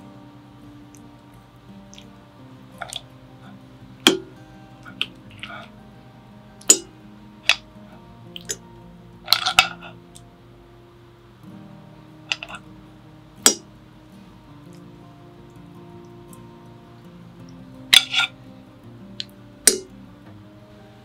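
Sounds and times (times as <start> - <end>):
soft background music: 0.0 - 21.0.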